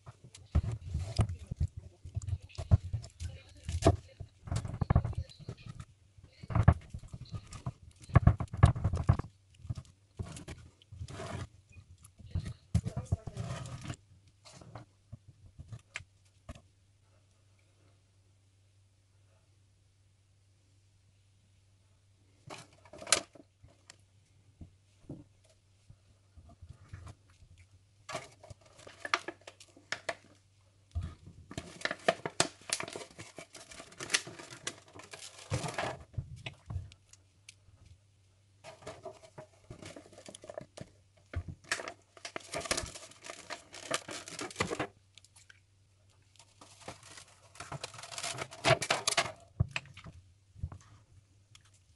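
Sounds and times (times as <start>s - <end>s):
crinkling and tearing: 0.1s - 14.8s, 26.8s - 37.6s, 38.6s - 50.1s.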